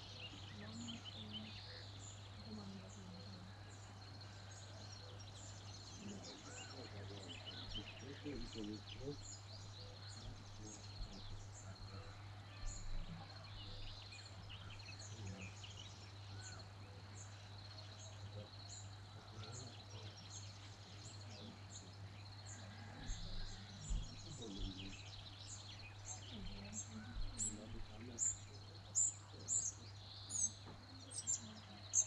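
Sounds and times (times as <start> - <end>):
steady low hum: 0.0 - 17.5
birds singing and calling: 0.0 - 32.0.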